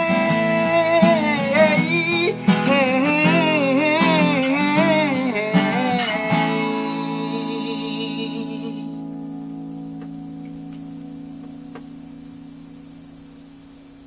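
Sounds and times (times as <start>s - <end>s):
man singing: 0.0s - 9.0s
acoustic guitar strummed: 0.0s - 14.0s.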